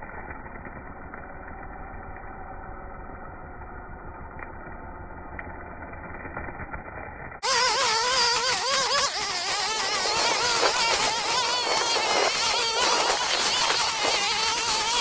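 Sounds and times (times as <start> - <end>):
string trimmer cutting weeds: 7.4 - 15.0.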